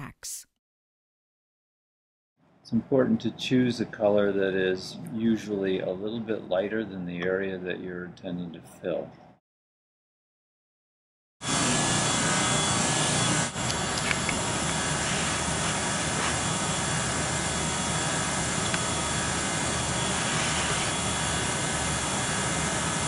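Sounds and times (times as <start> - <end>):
heat gun fan blowing: 11.4 - 23.0.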